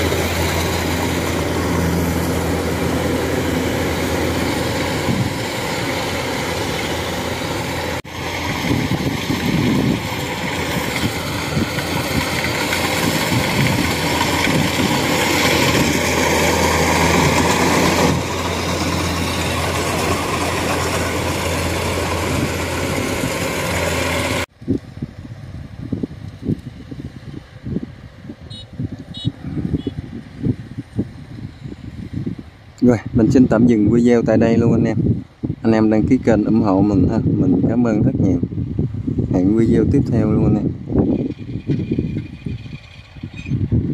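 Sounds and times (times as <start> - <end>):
combine harvester running: 0.0 - 24.6, 40.7 - 43.7.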